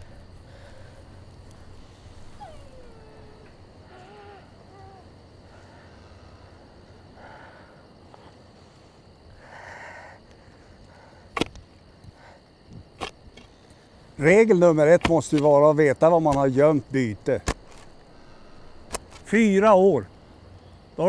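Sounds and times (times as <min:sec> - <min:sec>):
faint short animal calls: 0:01.8 - 0:05.8.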